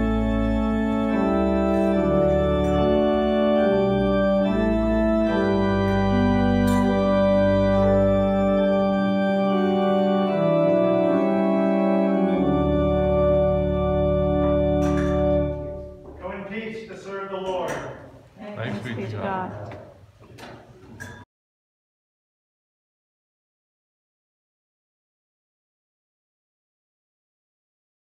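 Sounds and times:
church organ chords: 0:00.0 - 0:16.7.

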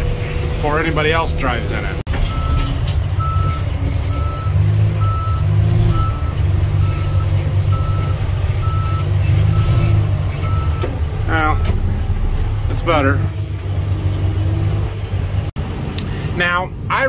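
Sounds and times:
diesel engine running: 0:00.0 - 0:17.0
back-up alarm beeping: 0:02.2 - 0:12.4.

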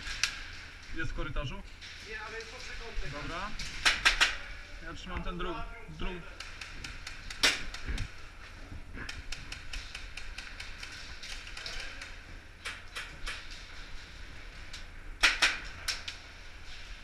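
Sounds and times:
rapid airsoft gun clicks: 0:06.3 - 0:08.1, 0:09.0 - 0:13.6
sharp airsoft gun cracks: 0:06.4 - 0:08.0, 0:15.2 - 0:16.2.

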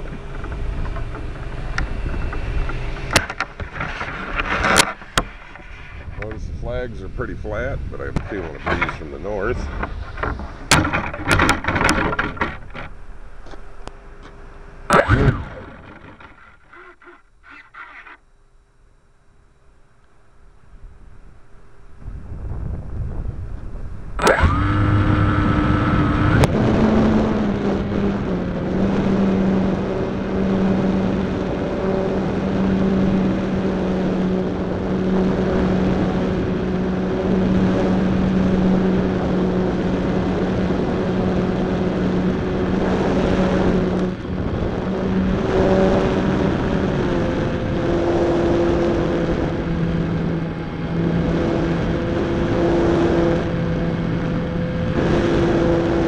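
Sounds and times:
electric motor and propeller droning: 0:00.0 - 0:19.1, 0:20.0 - 0:56.0
click: 0:13.5 - 0:15.2.

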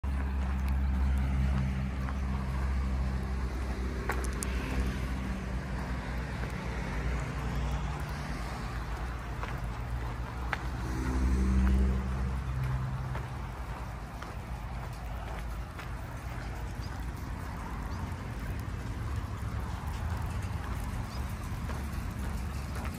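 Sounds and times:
road and wind noise: 0:00.0 - 0:22.9
vehicle engine running: 0:00.0 - 0:22.9
sharp clicks: 0:04.1 - 0:04.9.

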